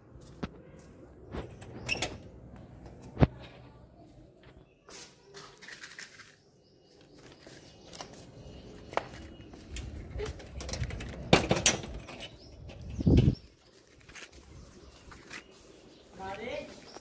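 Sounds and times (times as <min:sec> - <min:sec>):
metal door opening: 0:01.4 - 0:02.4, 0:10.0 - 0:13.2.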